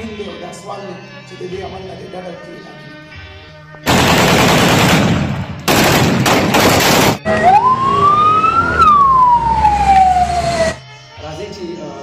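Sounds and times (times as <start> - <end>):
automatic gunfire: 3.9 - 7.2
ambulance siren wailing: 7.2 - 10.8.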